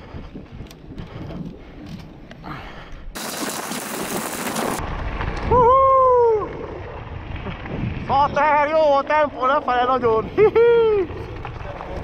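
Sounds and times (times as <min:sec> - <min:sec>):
mountain bike rattling on trail: 0:03.2 - 0:05.5.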